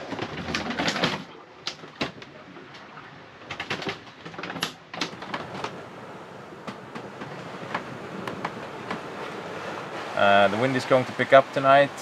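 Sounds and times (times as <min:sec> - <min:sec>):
knocks clicks and creaks in boat cabin: 0:00.0 - 0:10.2
plastic water bottle shifting: 0:03.5 - 0:05.9.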